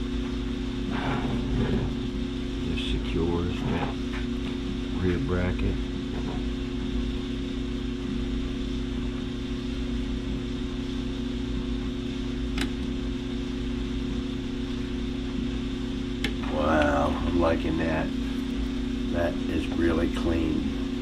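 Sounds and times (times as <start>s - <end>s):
mechanical hum with held tones: 0.0s - 21.0s.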